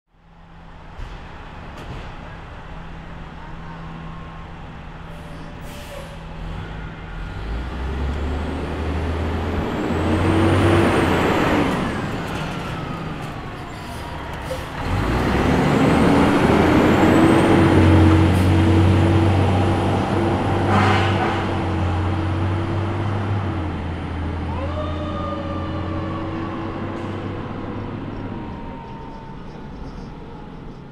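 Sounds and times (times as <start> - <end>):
fire truck diesel engine passing: 0.2 - 30.9
air brakes hissing: 5.1 - 6.3, 13.6 - 14.9.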